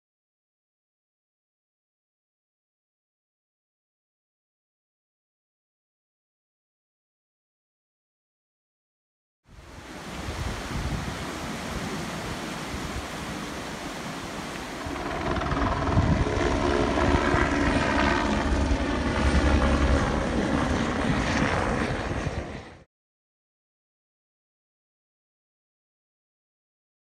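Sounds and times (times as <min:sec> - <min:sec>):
floodwater rushing: 0:09.6 - 0:18.0
helicopter flying overhead: 0:09.6 - 0:22.9.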